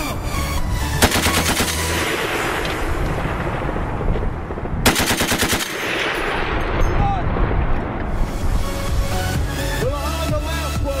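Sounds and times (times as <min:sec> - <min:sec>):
heavy machine gun bursts: 0:01.0 - 0:02.1, 0:04.8 - 0:06.4.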